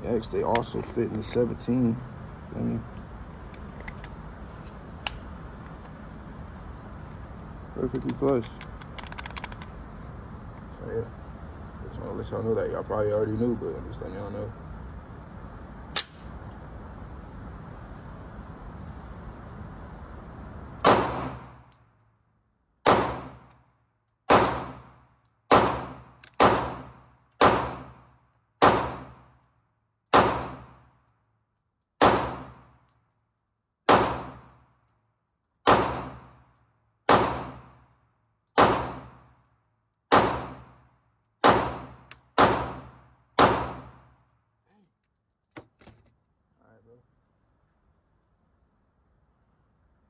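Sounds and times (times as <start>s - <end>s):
pistol shots: 20.8s - 21.6s, 22.8s - 23.5s, 24.3s - 28.0s, 28.6s - 29.3s, 30.1s - 30.8s, 32.0s - 32.7s, 33.9s - 34.6s, 35.6s - 36.3s, 37.1s - 37.8s, 38.6s - 39.2s, 40.1s - 40.8s, 41.4s - 44.1s.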